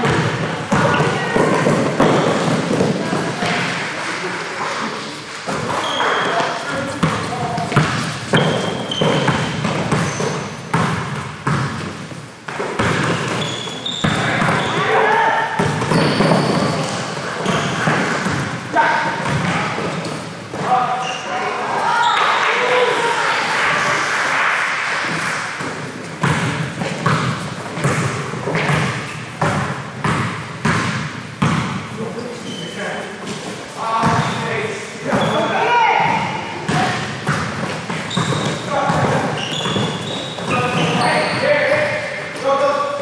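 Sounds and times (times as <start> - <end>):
basketball bouncing on gym floor: 0.0 - 3.8, 5.5 - 20.7, 25.1 - 31.9, 34.0 - 34.4, 35.0 - 42.0.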